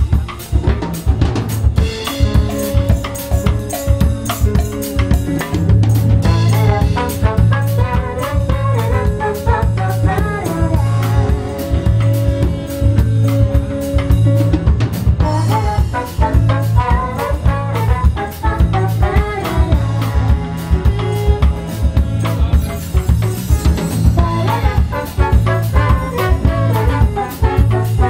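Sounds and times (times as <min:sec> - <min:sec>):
bass guitar line: 0:00.0 - 0:28.0
drum kit beat: 0:00.0 - 0:28.0
trombone: 0:00.0 - 0:28.0
saxophone: 0:05.5 - 0:14.6, 0:15.2 - 0:28.0.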